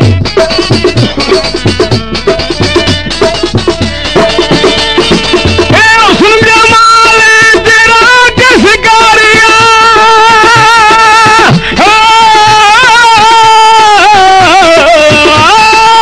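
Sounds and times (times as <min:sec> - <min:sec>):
person singing long ornamented notes: 0:04.1 - 0:16.0.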